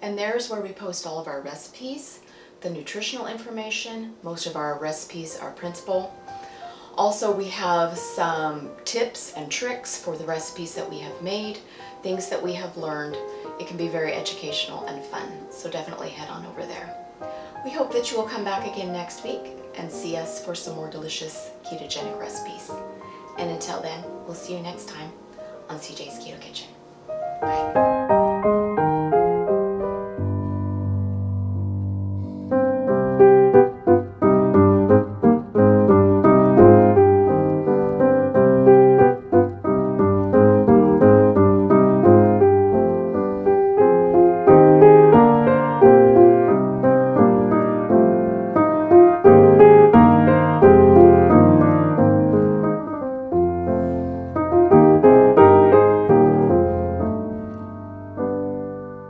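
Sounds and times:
piano music: 4.3 - 59.0.

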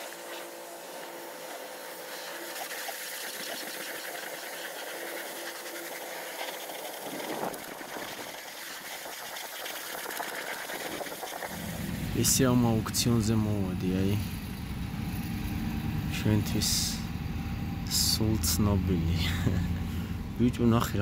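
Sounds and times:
high-pressure water spray hissing: 0.0 - 16.0
low rumble: 11.5 - 21.0.

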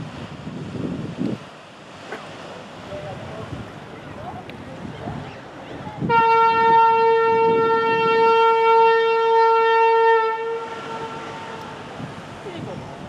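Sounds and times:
ferry horn blast: 6.0 - 11.9.

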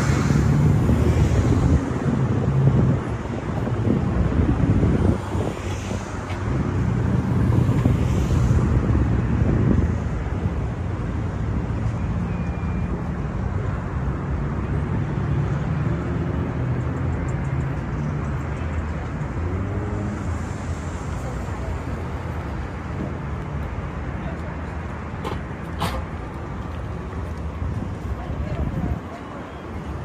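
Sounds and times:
wind buffeting microphone: 0.0 - 11.0, 26.4 - 29.2
street traffic engines: 0.0 - 30.0.

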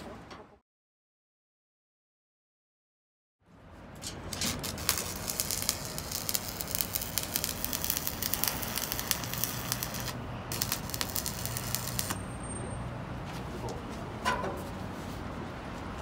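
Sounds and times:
welding arc crackling: 4.3 - 12.2.

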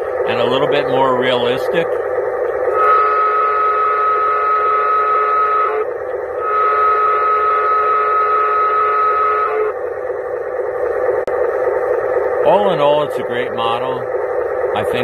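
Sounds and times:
model train diesel horn: 2.7 - 9.7.

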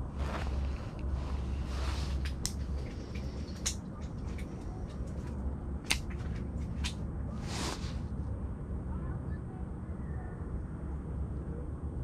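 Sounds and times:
rustling: 0.0 - 8.1
low hum: 0.0 - 10.1.

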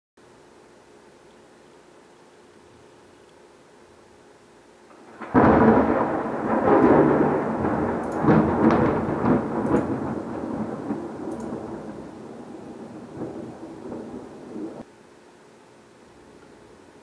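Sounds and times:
thunder clap and rolling rumble: 4.9 - 14.8.

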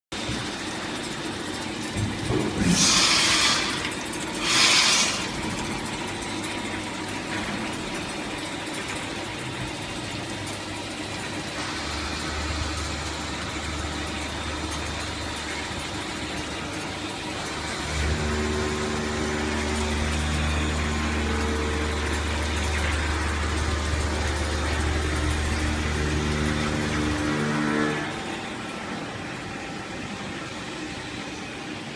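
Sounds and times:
machine hum with pitched tone: 0.2 - 31.9
machine hissing bursts: 2.6 - 5.4.

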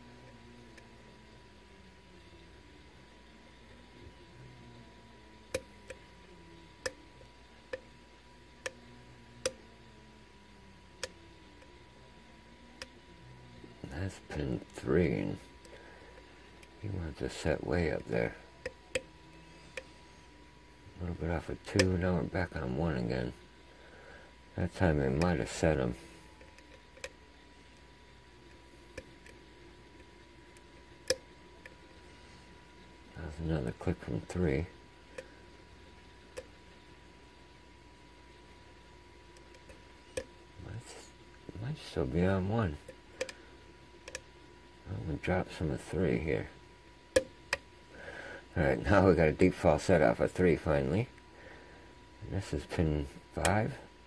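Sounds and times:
faint steady hum: 0.0 - 54.0.

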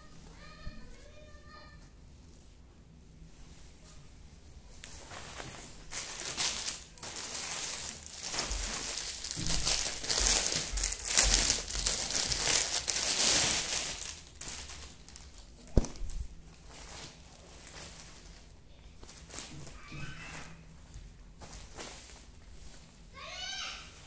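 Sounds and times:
plastic packet crinkling: 5.8 - 18.5.

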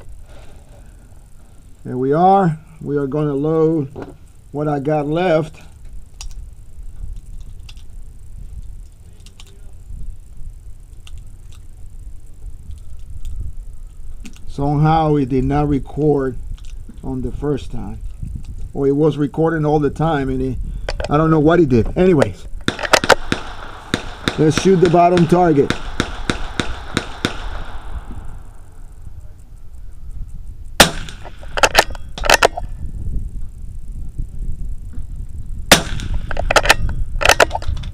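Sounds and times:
wind buffeting microphone: 5.2 - 37.9
cartridges clicking into magazine: 22.2 - 27.5, 30.8 - 32.7, 35.7 - 37.9
rifle shot: 22.6 - 28.6, 30.8 - 32.7, 35.7 - 37.7
rifle bolt clicking: 31.0 - 32.6.

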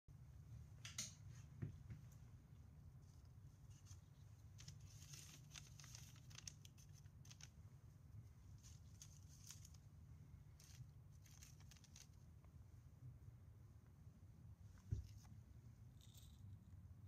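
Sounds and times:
low steady hum: 0.1 - 17.0
paper rustling: 3.2 - 7.6, 8.5 - 9.8, 10.6 - 12.2.

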